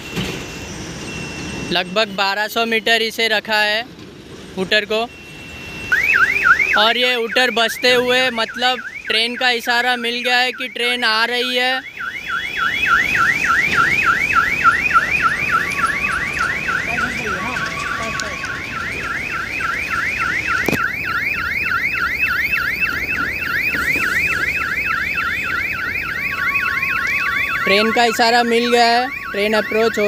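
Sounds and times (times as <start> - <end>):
railway warning hooter warbling: 4.6 - 30.0.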